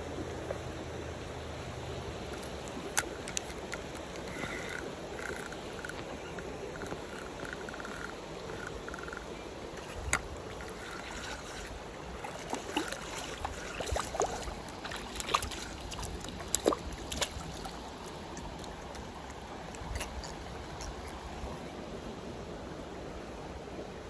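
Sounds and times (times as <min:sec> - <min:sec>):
stream running over rocks: 0:00.0 - 0:24.0.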